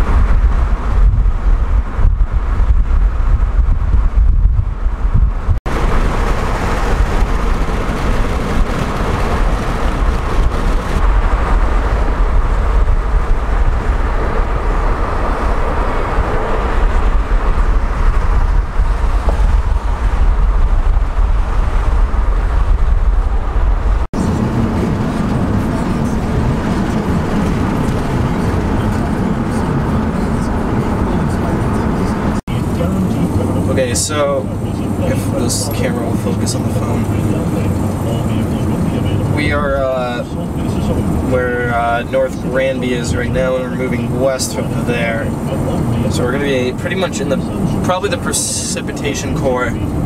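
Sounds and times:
car road and wind rumble: 0.0 - 50.0.

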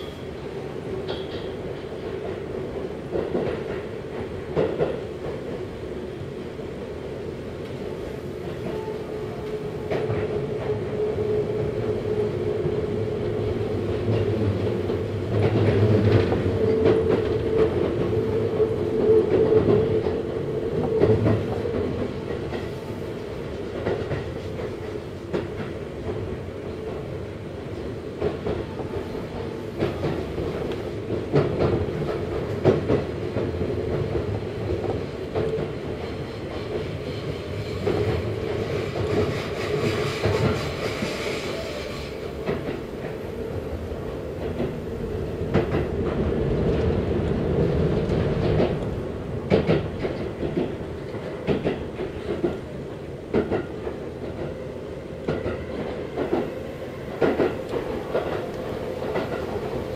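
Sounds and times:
electric train hum: 0.0 - 59.9.

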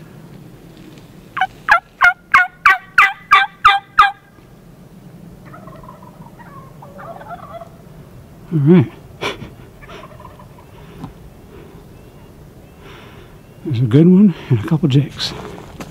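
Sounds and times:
turkey yelping: 1.4 - 4.3, 5.4 - 7.8, 9.7 - 10.8
distant turkey gobbling: 1.4 - 4.4, 5.4 - 7.9, 8.9 - 13.7.

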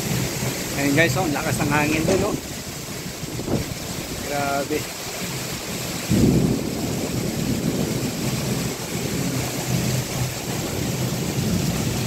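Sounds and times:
heavy rain: 0.0 - 12.0
wind gusting on microphone: 1.9 - 4.5, 6.0 - 12.0.

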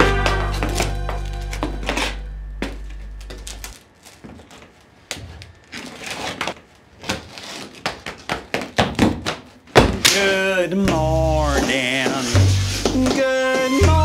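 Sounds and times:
band holding low note: 0.0 - 3.7.

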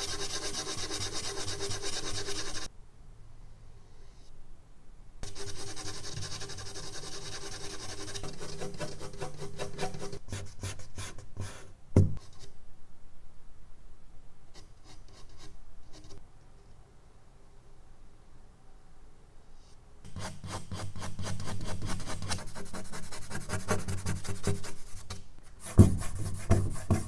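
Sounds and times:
eraser scrubbing on paper: 0.0 - 2.7, 5.2 - 10.2.

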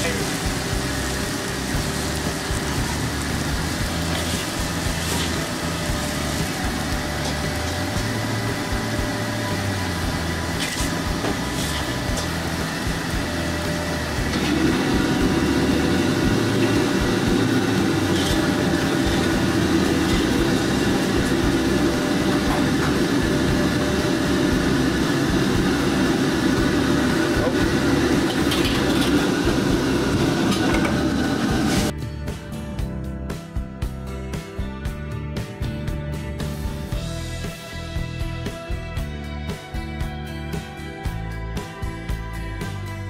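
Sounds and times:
machine rumble and hiss: 0.0 - 31.9.

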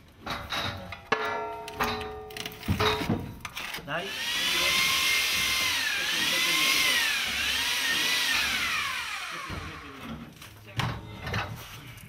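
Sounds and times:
electric power drill whining: 4.0 - 10.1.

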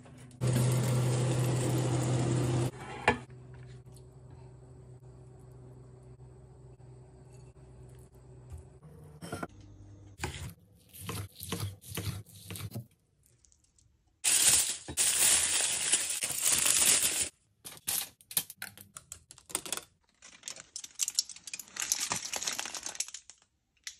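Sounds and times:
aluminium foil crinkling: 14.2 - 18.2, 19.4 - 23.9.

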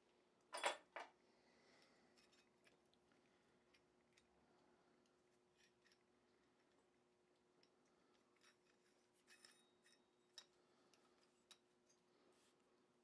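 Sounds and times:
metal latch parts clinking: 0.6 - 1.0
faint clicks and rubs of handling: 1.1 - 13.0.

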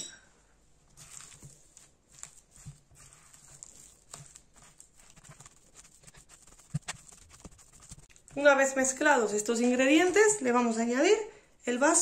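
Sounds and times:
spatula tapping and scraping bowl: 1.0 - 9.1.

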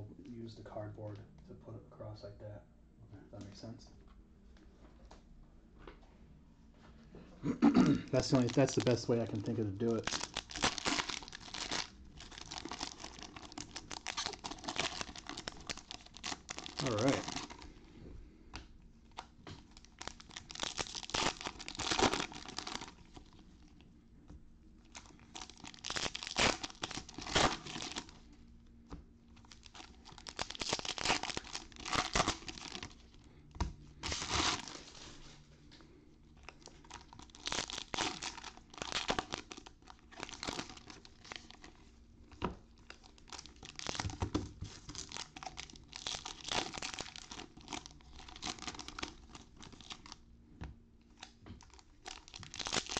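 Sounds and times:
plastic wrappers torn and crinkled: 8.2 - 17.7, 19.1 - 23.8, 24.8 - 28.3, 29.3 - 33.2, 34.0 - 35.1, 36.4 - 41.8, 42.7 - 50.2, 51.1 - 52.9.

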